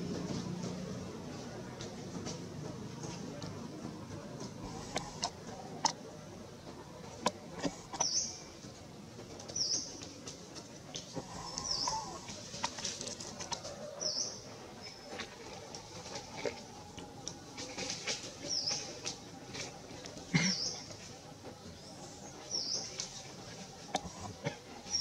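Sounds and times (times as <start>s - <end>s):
small bird chirping: 11.3s - 12.4s.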